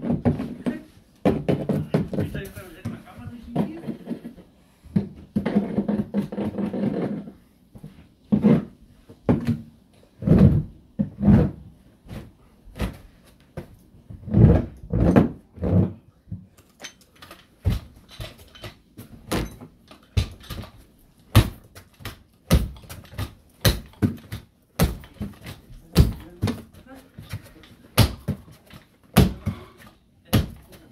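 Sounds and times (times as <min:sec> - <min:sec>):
dull heavy thuds: 0:19.0 - 0:30.7.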